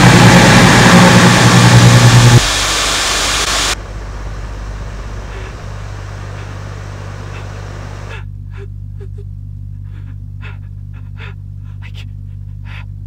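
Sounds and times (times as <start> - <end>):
low hum: 0.0 - 13.0
person panting: 5.3 - 5.7, 7.2 - 9.2, 9.8 - 13.0.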